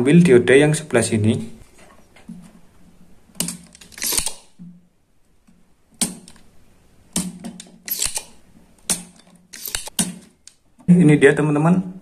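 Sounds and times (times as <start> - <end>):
desoldering pump snapping: 3.3 - 4.6, 7.1 - 10.6.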